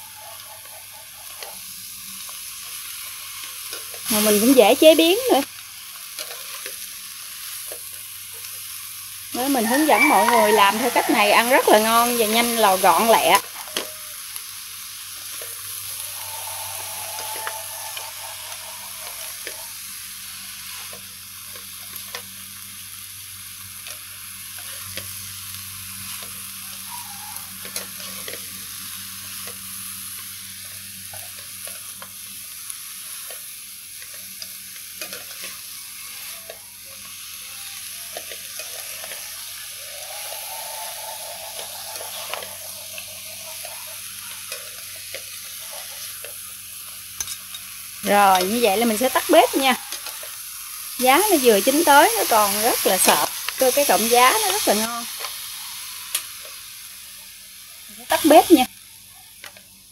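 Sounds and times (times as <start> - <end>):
food sizzling in a wok: 0.0 - 59.9
spatula scraping and tapping pan: 40.3 - 46.4.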